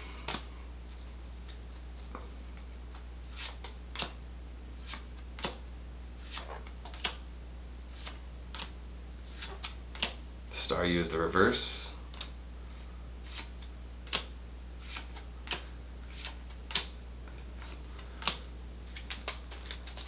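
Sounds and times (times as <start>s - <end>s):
steady low hum: 0.0s - 20.0s
cards flicking and sliding: 2.9s - 4.2s, 4.8s - 5.6s, 6.2s - 7.2s, 7.9s - 8.7s, 9.3s - 10.2s, 12.1s - 16.9s, 17.6s - 20.0s.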